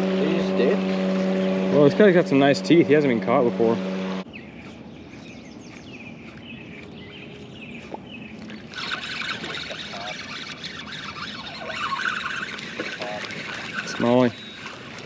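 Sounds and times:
loud rough noise: 0:00.0 - 0:04.3
small birds chirping: 0:03.8 - 0:15.0.

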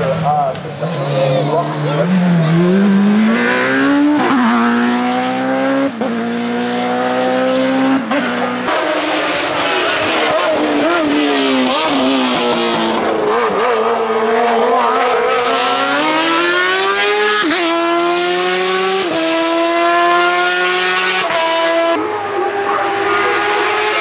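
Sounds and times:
race car engine accelerating: 0:00.0 - 0:24.0.

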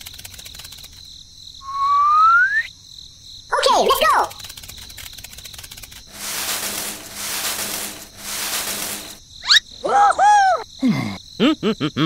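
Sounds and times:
rustling hissing noise: 0:04.4 - 0:09.2.

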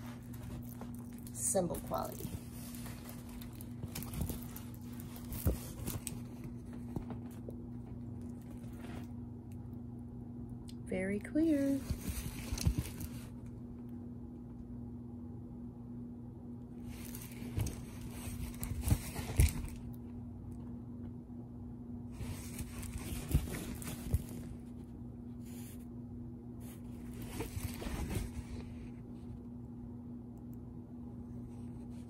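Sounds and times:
canvas and plastic film crinkling: 0:00.0 - 0:07.5, 0:11.5 - 0:13.4, 0:16.8 - 0:19.9, 0:22.2 - 0:24.8
steady low hum: 0:00.0 - 0:32.0.

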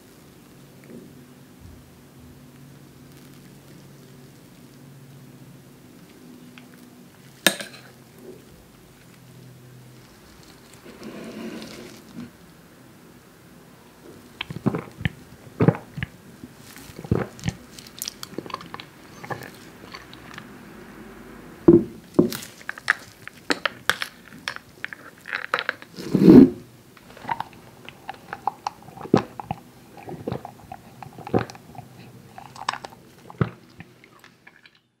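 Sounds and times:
person gulping: 0:14.4 - 0:16.1, 0:16.8 - 0:20.4, 0:27.1 - 0:34.9.

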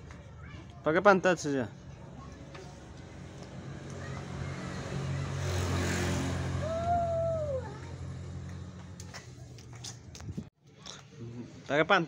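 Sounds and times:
vehicle engine passing by: 0:02.7 - 0:09.3.

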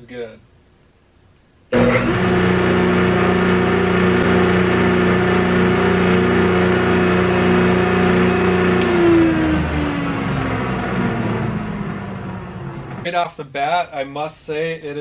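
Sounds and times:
jointer motor humming: 0:01.7 - 0:13.1.

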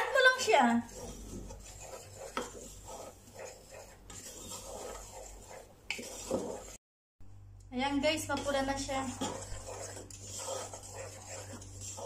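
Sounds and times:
spatula scraping in metal pot: 0:00.0 - 0:06.8, 0:08.2 - 0:12.0.

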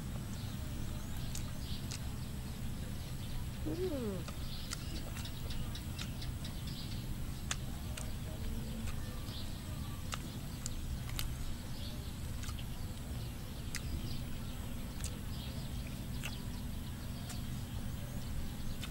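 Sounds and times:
steady low rumble: 0:00.0 - 0:18.9
faint bird chirps: 0:00.1 - 0:18.9
person chewing with mouth clicks: 0:01.2 - 0:02.1, 0:03.6 - 0:06.5, 0:07.4 - 0:09.1, 0:10.0 - 0:11.4, 0:12.3 - 0:13.1, 0:13.7 - 0:14.2, 0:15.0 - 0:15.2, 0:15.8 - 0:16.4, 0:17.2 - 0:17.5.

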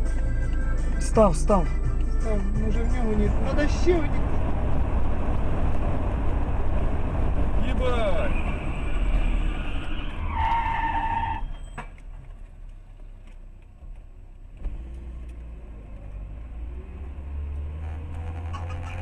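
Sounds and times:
car road and engine rumble: 0:00.0 - 0:19.0
tire squeal of hard braking: 0:07.8 - 0:12.0, 0:17.7 - 0:19.0.

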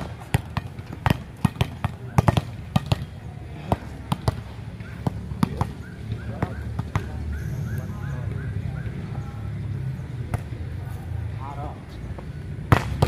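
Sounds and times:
volleyballs slapped and bouncing: 0:00.0 - 0:07.2, 0:12.2 - 0:13.0.

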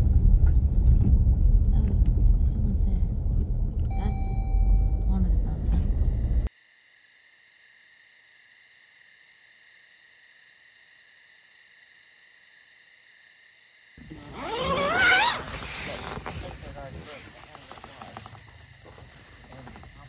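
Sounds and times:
low rumble: 0:00.0 - 0:06.5
insects chirping trill: 0:03.9 - 0:20.0.

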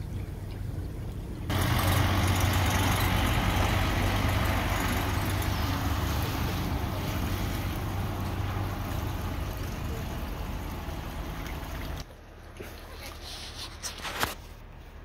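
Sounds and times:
boat engine idling: 0:00.1 - 0:12.0
water rushing into lock chamber: 0:01.5 - 0:12.0.

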